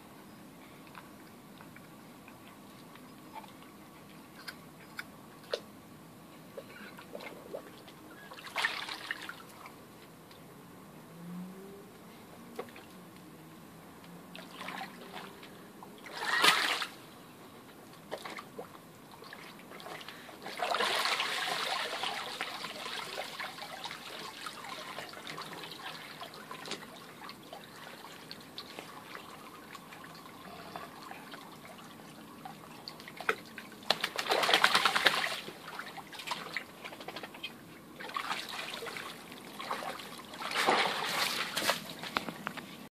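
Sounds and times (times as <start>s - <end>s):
water splashing and sloshing: 6.6s - 10.1s, 12.5s - 13.0s, 14.2s - 42.9s
water trickling and dripping: 18.6s - 34.2s.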